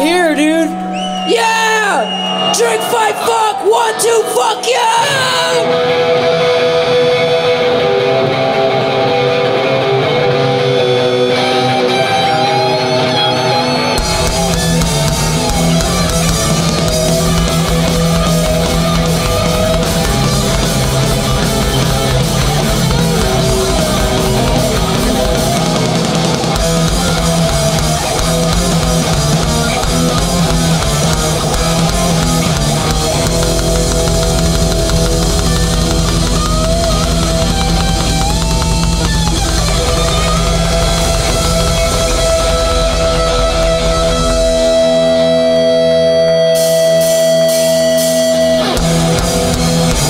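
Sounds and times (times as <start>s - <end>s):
ringing guitar notes: 0.0s - 50.0s
thrash band playing live: 0.0s - 50.0s.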